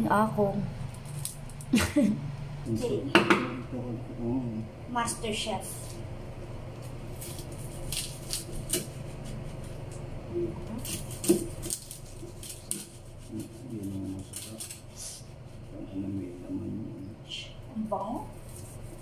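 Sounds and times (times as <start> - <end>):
knives chopping on wooden board: 10.8 - 12.9.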